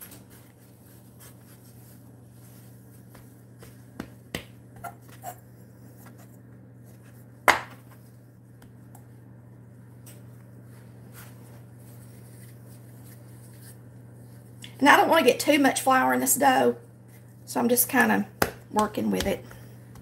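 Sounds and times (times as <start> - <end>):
hands tapping dough: 3.0 - 5.2, 18.4 - 20.0.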